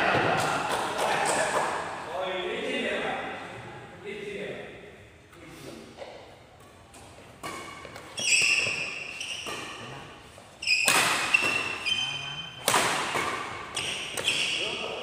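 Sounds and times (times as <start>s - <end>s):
rackets hitting shuttlecock: 6.6s - 9.9s, 10.6s - 12.0s, 12.6s - 14.8s
shoes squeaking on wooden floor: 7.4s - 12.4s, 13.7s - 14.8s.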